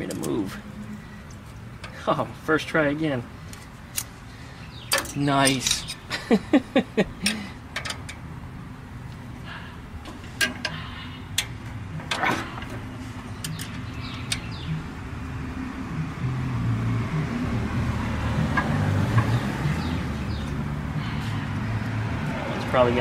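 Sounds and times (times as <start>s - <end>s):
metal clicks of tools: 4.9s - 6.0s, 7.2s - 8.2s
low engine hum: 6.4s - 23.0s.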